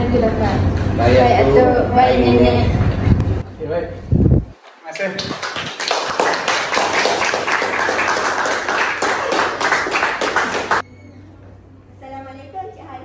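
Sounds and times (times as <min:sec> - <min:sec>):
group applauding: 0:04.8 - 0:10.8.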